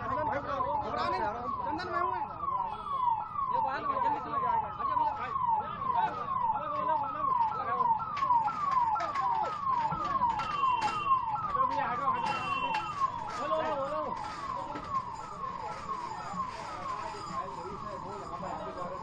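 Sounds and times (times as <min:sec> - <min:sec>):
emergency siren wailing: 0:00.0 - 0:19.0
knocks and clatter: 0:08.1 - 0:11.5.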